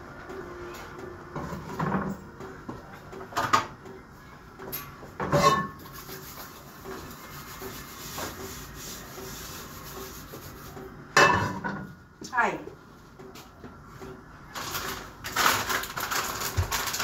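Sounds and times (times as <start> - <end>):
metal pots clanking on grates: 4.7 - 6.1, 11.2 - 12.0
pots scraping: 5.2 - 8.5.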